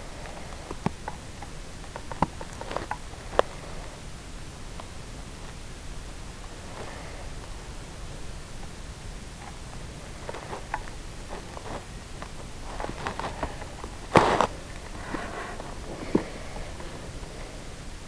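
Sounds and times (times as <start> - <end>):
faint rustling: 6.4 - 18.0.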